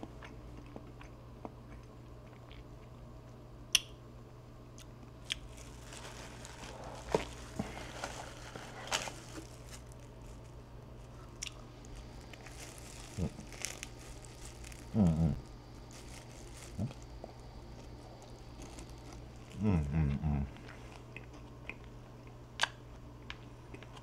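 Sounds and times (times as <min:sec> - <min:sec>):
person chewing crunchy food: 0:00.0 - 0:03.0, 0:04.8 - 0:24.0
steady low hum: 0:00.0 - 0:24.0
short hummed voice: 0:14.8 - 0:15.5, 0:16.7 - 0:17.1, 0:19.4 - 0:20.6.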